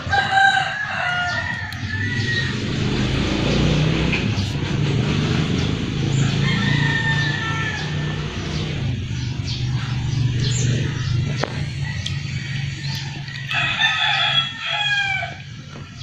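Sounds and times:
rooster crowing: 0:00.0 - 0:03.1, 0:06.0 - 0:08.6, 0:11.6 - 0:15.6.

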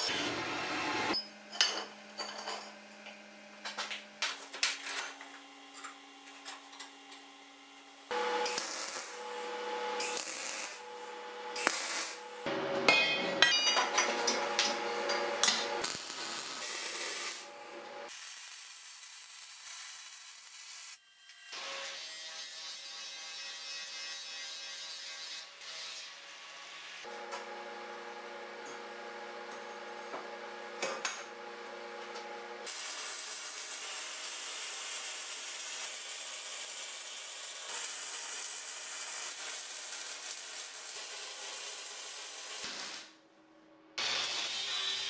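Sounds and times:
arc welding hissing and crackling: 0:08.0 - 0:12.5, 0:14.6 - 0:21.0, 0:32.6 - 0:43.2, 0:44.0 - 0:45.0
angle grinder grinding steel: 0:08.1 - 0:12.5.

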